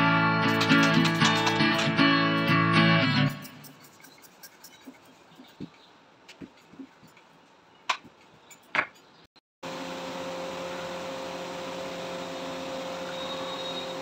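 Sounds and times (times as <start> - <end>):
electric fan whirring: 9.7 - 14.0.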